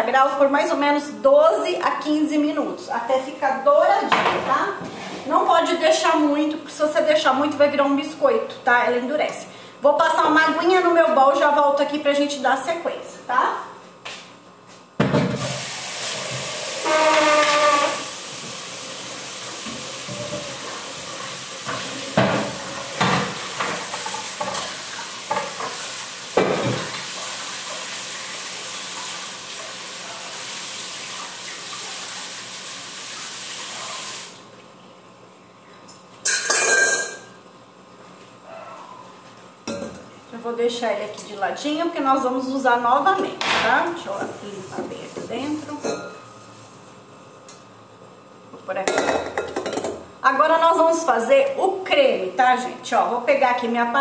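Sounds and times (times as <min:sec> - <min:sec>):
tap water running into metal bowl: 0:15.4 - 0:34.2.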